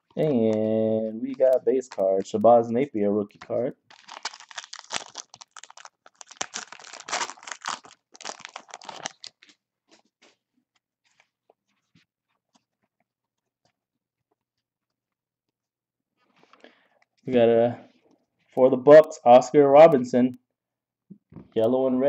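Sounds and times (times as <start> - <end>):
foil wrapper crinkling and tearing: 1.3 - 2.6, 3.3 - 10.0.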